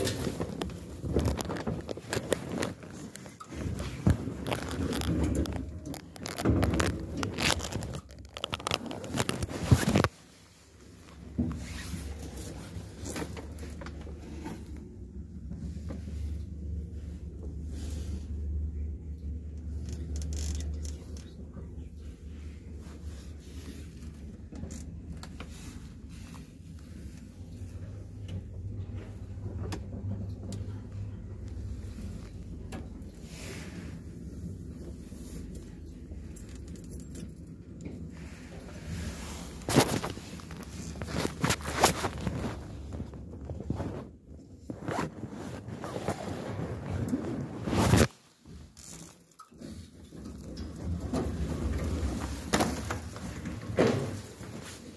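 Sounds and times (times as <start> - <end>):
phone microphone rubbing on fabric: 39.0 - 48.4.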